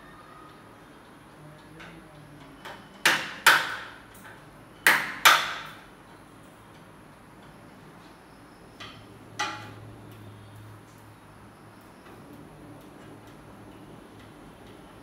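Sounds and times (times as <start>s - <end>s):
knocks on metal window frame: 3.0s - 4.0s, 4.8s - 5.8s.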